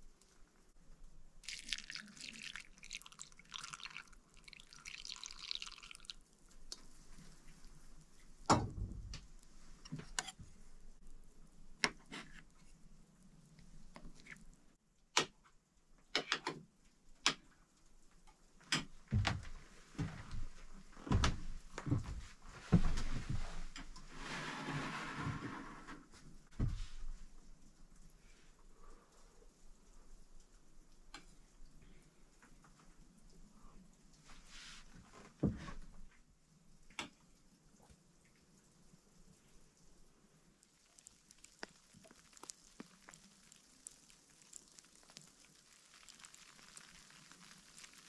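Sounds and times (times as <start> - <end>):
milk pouring into bowl: 1.4 - 6.3, 40.6 - 48.0.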